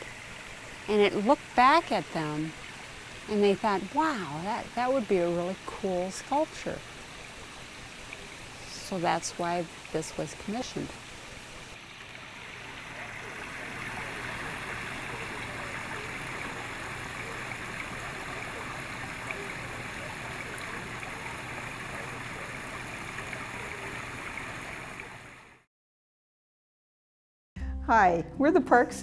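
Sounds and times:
water rushing in pond feature: 0.0 - 25.7.

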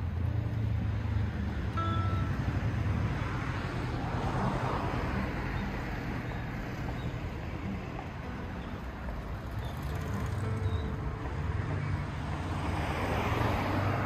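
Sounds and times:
car passing by: 0.0 - 14.0
low road noise rumble: 0.0 - 14.0.

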